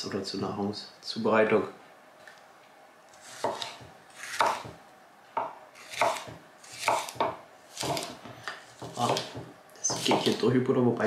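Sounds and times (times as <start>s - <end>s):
knife slicing bell pepper: 3.1s - 4.8s, 5.8s - 10.5s.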